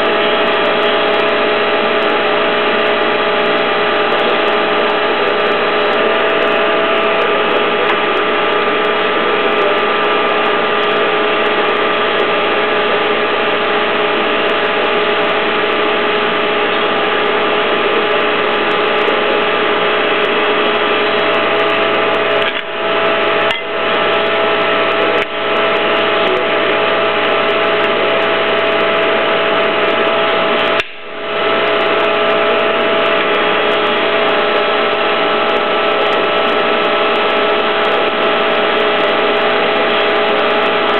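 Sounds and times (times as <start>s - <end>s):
hydraulic pump humming: 0.0s - 40.9s.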